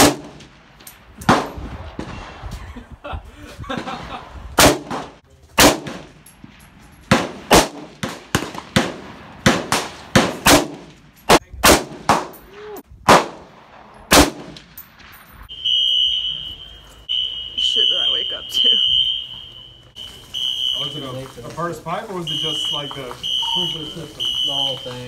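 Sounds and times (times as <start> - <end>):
rifle shots with echo: 0.0 - 2.5, 3.7 - 12.4, 13.0 - 15.2
high steady alarm tone: 15.5 - 21.3, 22.1 - 25.0.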